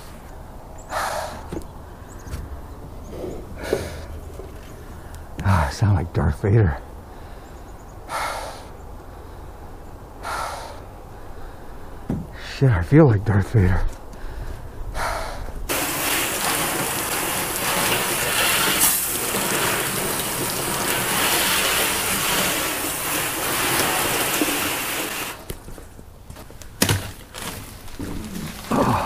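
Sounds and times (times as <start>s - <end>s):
hose spray hitting truck bed: 15.7s - 25.5s.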